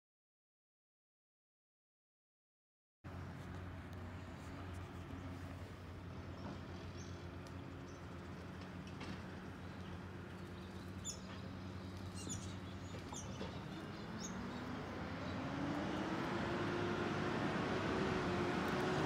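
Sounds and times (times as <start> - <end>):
distant truck diesel engine: 3.1 - 19.0
bird chirping: 9.4 - 16.0.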